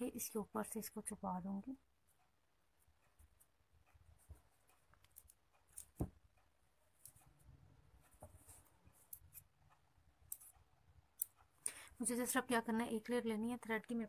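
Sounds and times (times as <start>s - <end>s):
bangle clicks: 4.9s - 6.5s.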